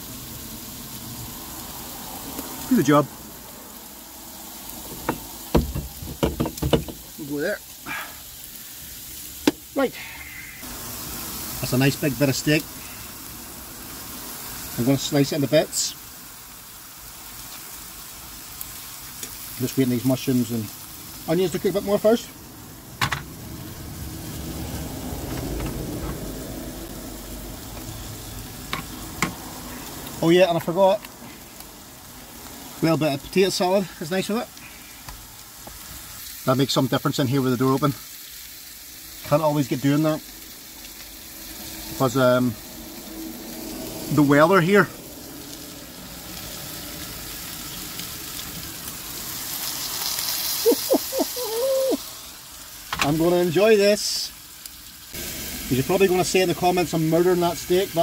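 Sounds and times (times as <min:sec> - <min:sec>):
food sizzling in a frying pan: 0:00.0 - 0:58.0
passing road vehicle rumble: 0:00.1 - 0:06.0, 0:21.0 - 0:32.8, 0:40.4 - 0:50.1.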